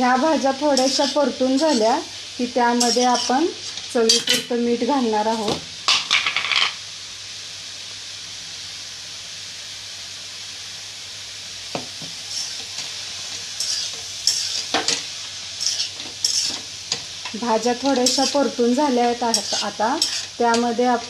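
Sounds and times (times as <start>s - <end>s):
vegetables sizzling in a pan: 0.0s - 21.0s
metal spatula scraping a pan: 0.7s - 2.0s, 2.8s - 4.5s, 12.2s - 21.0s.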